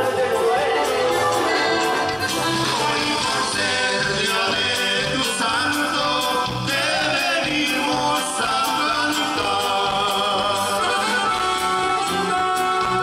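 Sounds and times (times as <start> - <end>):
saxophone: 0.0 - 4.5, 9.1 - 13.0
live band playing: 0.0 - 13.0
person singing: 0.0 - 13.0.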